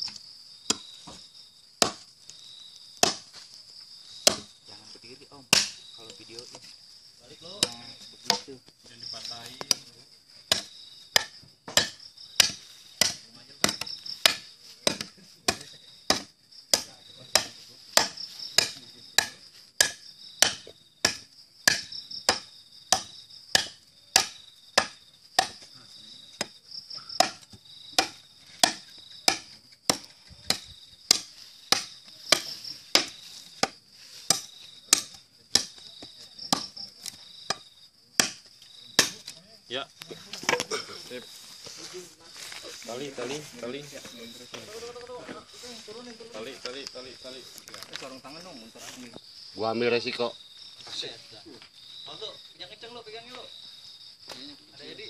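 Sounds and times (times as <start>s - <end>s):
knife chopping into wooden post: 0.0s - 2.1s, 3.0s - 3.4s, 4.2s - 4.5s, 5.5s - 5.8s, 7.6s - 8.5s, 10.5s - 25.8s, 26.4s - 39.4s
crickets chirring: 0.0s - 55.0s.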